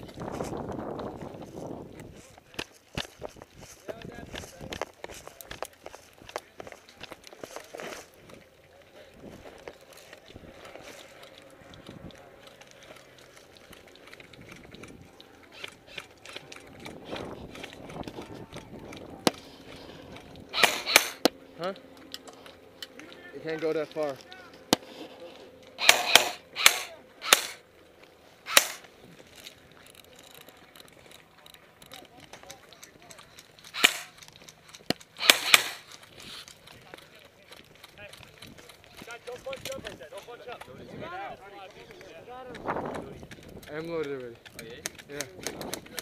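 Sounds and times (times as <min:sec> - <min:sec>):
footsteps crunching on dry dirt: 0:00.0 - 0:25.7, 0:26.9 - 0:46.0
airsoft rifle shots: 0:20.5 - 0:21.3, 0:25.8 - 0:27.6, 0:28.5 - 0:28.9, 0:33.7 - 0:34.2, 0:35.2 - 0:35.9.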